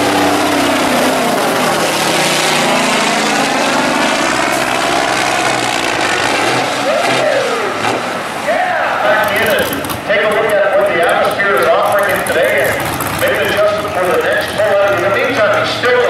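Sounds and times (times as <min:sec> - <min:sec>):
truck engine under heavy load: 0:00.0 - 0:16.0.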